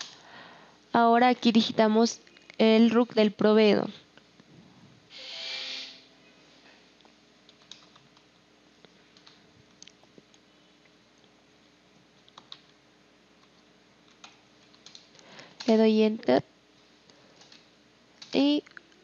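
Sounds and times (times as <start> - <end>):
computer keyboard keystrokes: 7.5 - 8.3, 9.2 - 9.4, 12.3 - 12.8, 13.4 - 15.8, 17.4 - 18.4.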